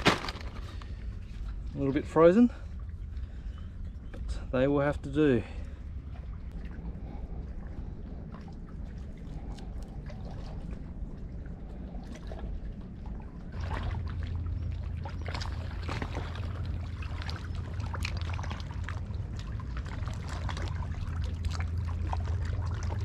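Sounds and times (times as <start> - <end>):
low steady rumble: 0.0 - 23.0
river water lapping among rocks: 8.1 - 23.0.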